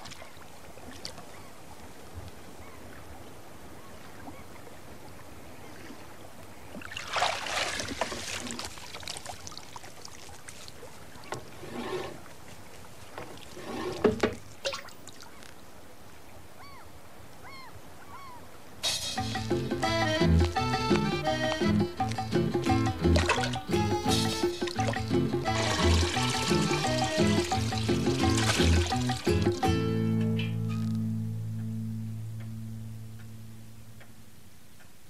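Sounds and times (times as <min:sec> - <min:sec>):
water splashing and dripping: 0:00.0 - 0:01.4, 0:06.7 - 0:11.6, 0:12.2 - 0:15.6, 0:20.4 - 0:31.0
tape hiss: 0:15.4 - 0:35.0.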